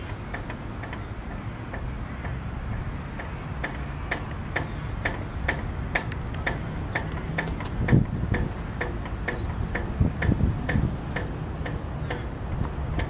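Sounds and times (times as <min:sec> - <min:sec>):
sharp regular ticking: 0:03.2 - 0:13.0.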